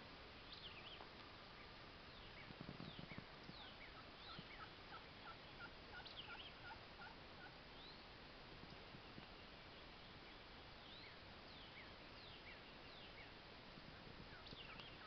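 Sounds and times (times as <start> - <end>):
songbirds chirping faintly: 0.0 - 15.0
wild turkey calling: 1.6 - 8.0, 14.3 - 15.0.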